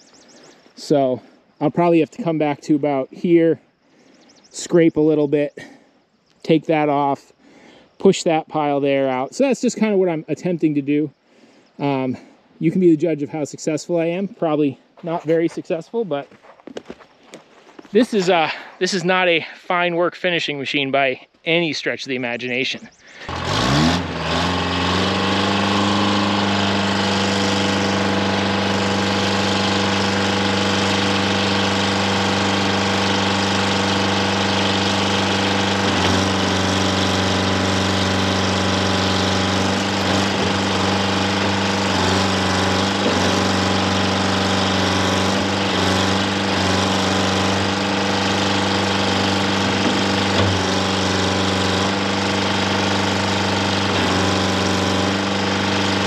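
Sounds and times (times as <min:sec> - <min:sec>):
diesel engine running loudly: 0:22.8 - 0:56.0.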